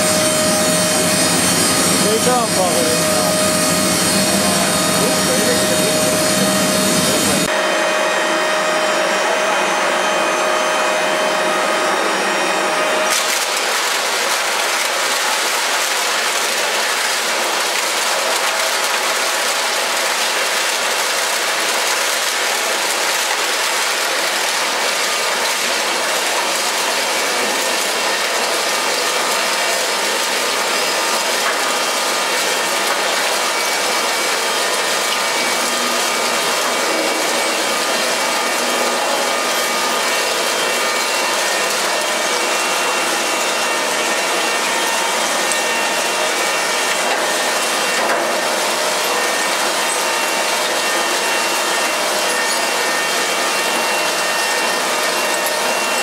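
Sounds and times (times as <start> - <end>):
shredder grinding scrap: 0.0 - 9.0, 9.7 - 56.0
steady whine: 0.0 - 26.6, 27.2 - 56.0.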